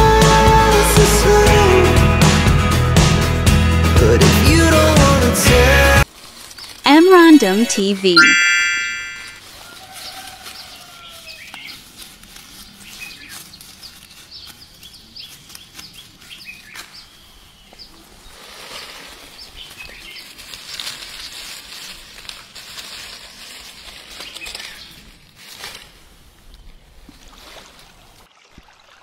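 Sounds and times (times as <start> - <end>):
leaves rustling underfoot: 6.0 - 8.0, 9.4 - 28.2
small birds chirping: 10.5 - 11.9, 12.6 - 18.4, 19.4 - 20.4.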